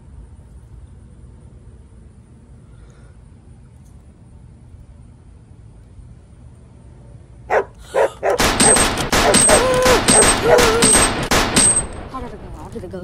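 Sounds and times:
sharp bangs: 8.2s - 13.0s
boy screaming: 9.5s - 11.0s.

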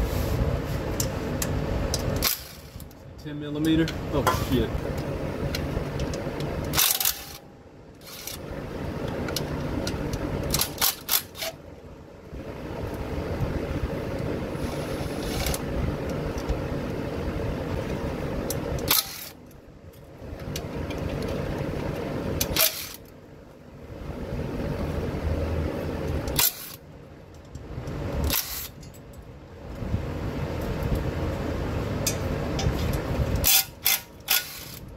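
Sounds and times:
power ratchet spinning bolts: 2.2s - 2.8s, 6.7s - 7.4s, 8.0s - 8.4s, 10.5s - 11.6s, 14.7s - 15.6s, 18.8s - 19.4s, 22.4s - 23.0s, 26.2s - 26.8s, 28.2s - 29.0s, 33.4s - 34.9s
ratchet sharp click: 6.7s - 7.4s, 18.8s - 19.4s, 22.4s - 23.0s, 26.3s - 26.8s, 28.2s - 29.0s, 33.4s - 34.9s.

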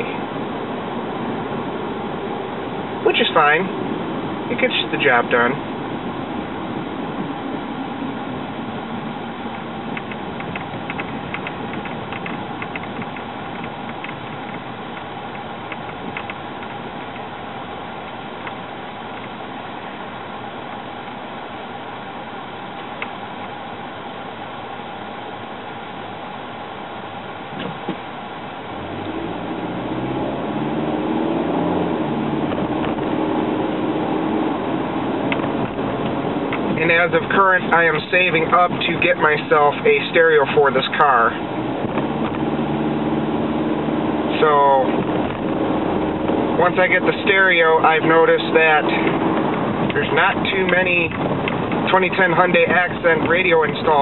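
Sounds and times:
car engine and road noise: 0.0s - 54.0s
light clicks and rattles: 9.9s - 17.3s.

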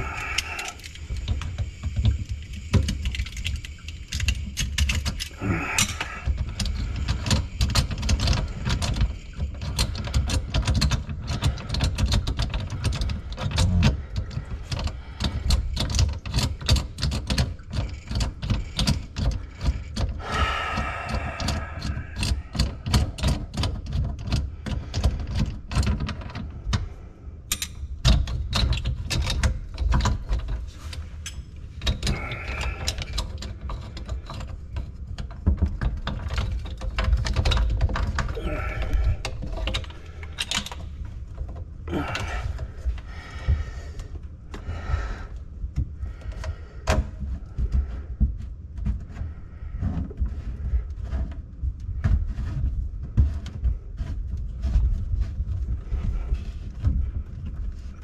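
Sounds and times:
tools clicking and clattering: 0.0s - 26.9s, 27.5s - 43.1s.

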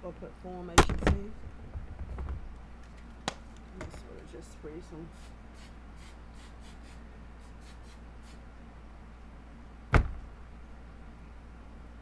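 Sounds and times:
sharp thump: 9.9s - 10.3s.

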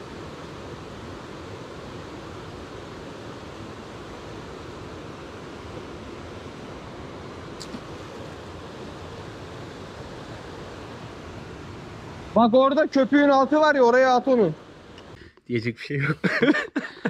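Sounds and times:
stream water rushing: 0.0s - 15.2s.

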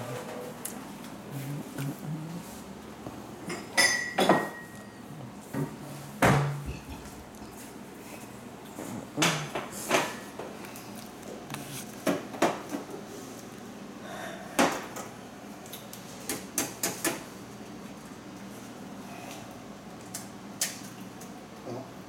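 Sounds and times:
ceramic mug and kitchenware clinks: 3.5s - 5.0s.

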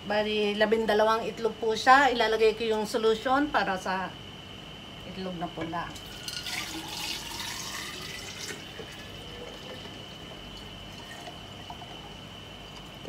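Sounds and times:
liquid pouring into a glass jar: 6.0s - 12.2s.

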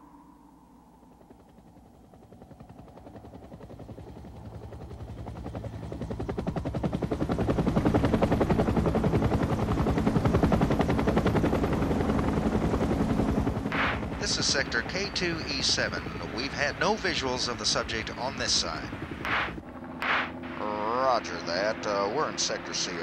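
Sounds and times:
helicopter rotor chopping: 1.1s - 23.0s.

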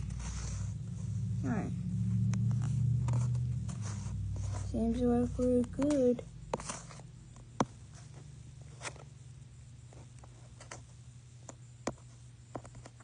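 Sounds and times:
steady low hum: 0.0s - 13.0s
toys clicking and rustling: 5.4s - 6.9s.

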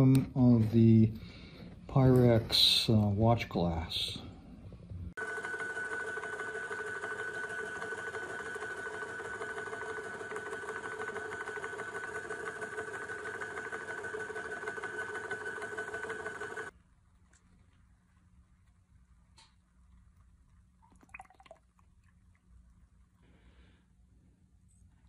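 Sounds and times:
shaking table motor whine and rattle: 5.2s - 16.7s.

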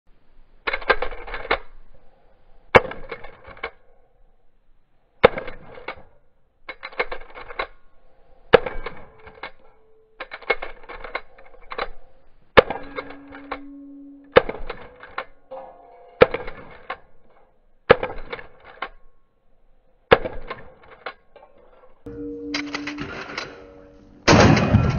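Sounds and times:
shotgun pump racking clacks: 6.7s - 7.8s, 8.5s - 13.7s, 14.3s - 15.4s, 16.2s - 19.0s, 20.2s - 22.0s
shotgun firing: 24.3s - 24.9s.

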